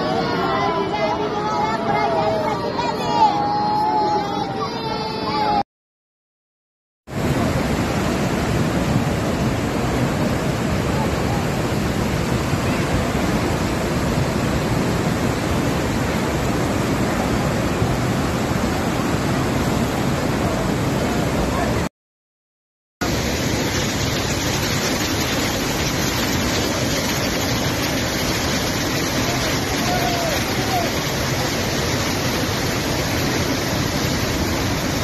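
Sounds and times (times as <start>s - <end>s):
flood water rushing: 7.1s - 21.9s, 23.0s - 35.0s.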